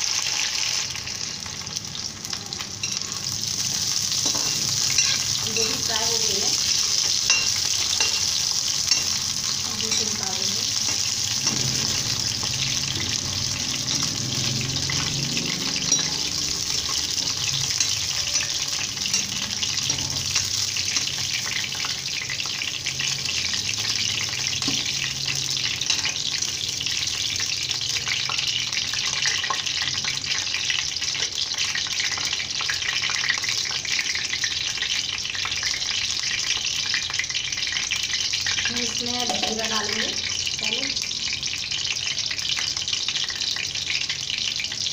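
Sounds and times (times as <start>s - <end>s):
vegetables sizzling in hot oil: 0.0s - 44.9s
metal spatula stirring in pan: 2.8s - 6.0s, 6.6s - 13.1s.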